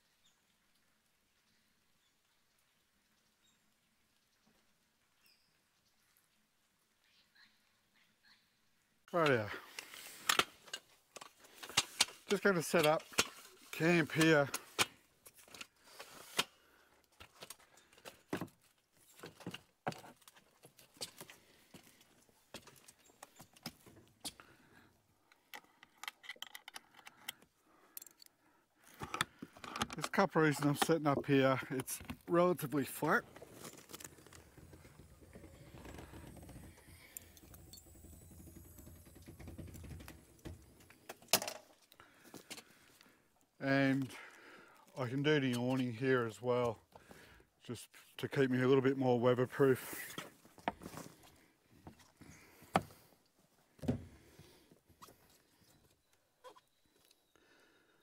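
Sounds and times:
rooftop tent rattles and clicks: 0:30.0 - 0:41.6.

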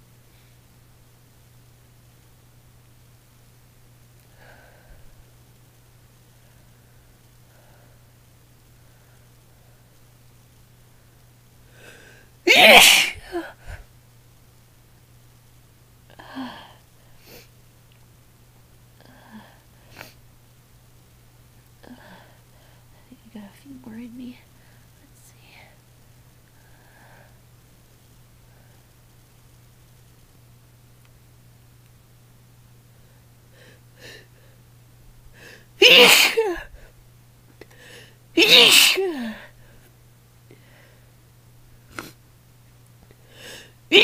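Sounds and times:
woman sneezing: 0:12.5 - 0:13.6, 0:35.8 - 0:36.8, 0:38.4 - 0:39.4, 0:43.5 - 0:44.0
catching breaths: 0:37.6 - 0:38.2.

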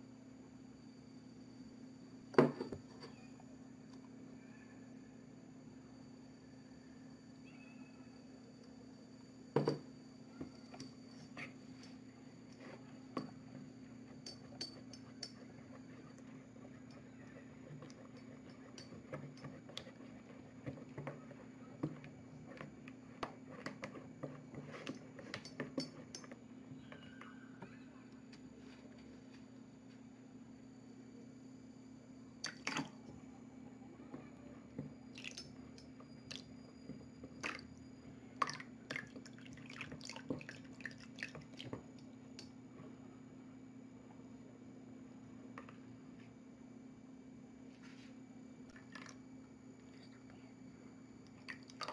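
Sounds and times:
faint steady hum: 0:00.0 - 0:51.9
stick stirring wet slime: 0:14.0 - 0:26.3, 0:38.4 - 0:42.5.

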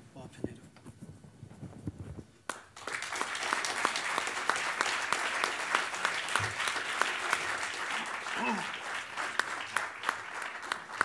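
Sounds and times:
audience applause: 0:02.5 - 0:11.0.

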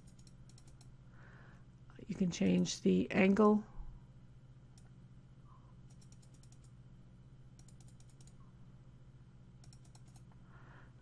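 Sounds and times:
keyboard typing: 0:00.0 - 0:00.9, 0:05.9 - 0:06.8, 0:07.6 - 0:08.4, 0:09.6 - 0:10.3
low steady hum: 0:00.0 - 0:11.0.

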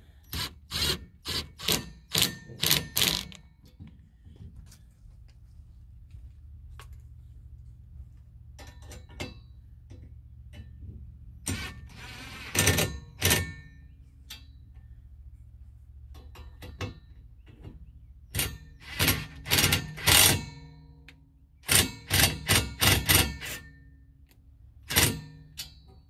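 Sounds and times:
impact wrench bursts: 0:00.2 - 0:03.4.

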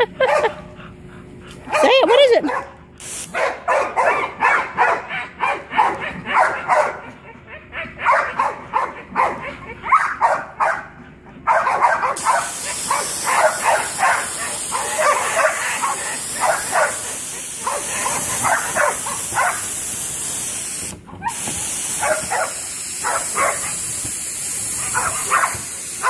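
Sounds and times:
dog barking: 0:01.7 - 0:07.2, 0:07.8 - 0:19.7, 0:22.0 - 0:23.8, 0:24.8 - 0:25.7
hose water spray hissing: 0:03.0 - 0:03.4, 0:12.2 - 0:26.0.

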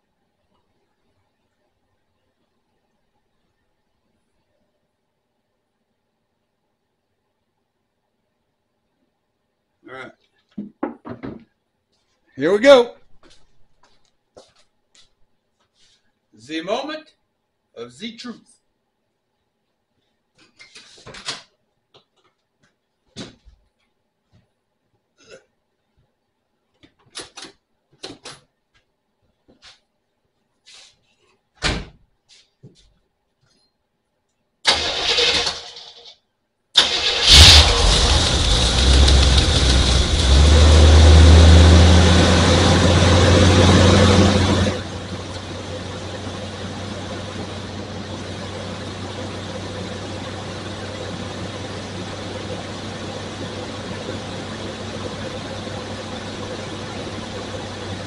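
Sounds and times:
car engine cranking and starting: 0:34.7 - 0:36.1, 0:36.8 - 0:58.0
car engine revving and running: 0:36.8 - 0:58.0.

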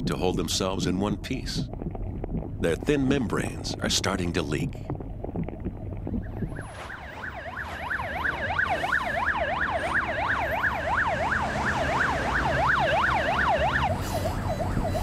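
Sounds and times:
traffic rumble: 0:00.0 - 0:15.0
ambulance siren yelping: 0:06.1 - 0:15.0.

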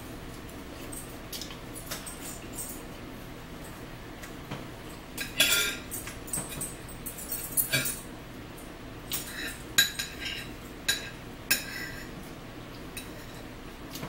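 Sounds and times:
fork scraping on plate: 0:09.2 - 0:12.2.

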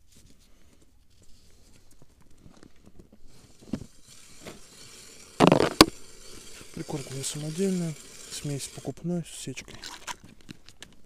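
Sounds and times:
plastic clatter: 0:02.4 - 0:06.7.

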